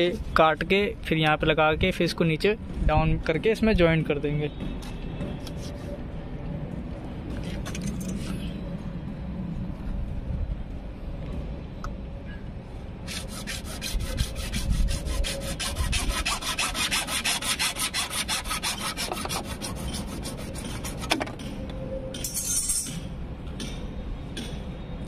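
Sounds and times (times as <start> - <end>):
hacksaw sawing plastic pipe: 13.1 - 21.4.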